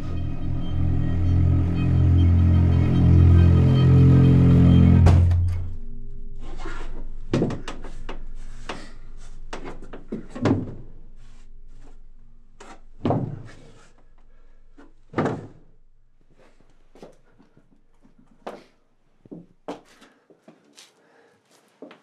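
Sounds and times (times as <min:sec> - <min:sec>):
faint low tones: 0:00.0 - 0:16.3
wooden knocks and thuds: 0:07.3 - 0:08.8, 0:09.5 - 0:10.9, 0:13.0 - 0:13.6, 0:15.1 - 0:15.6.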